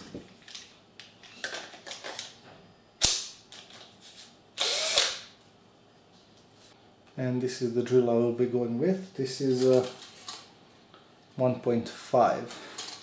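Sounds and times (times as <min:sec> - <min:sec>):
cordless drill burst: 0:04.6 - 0:05.3.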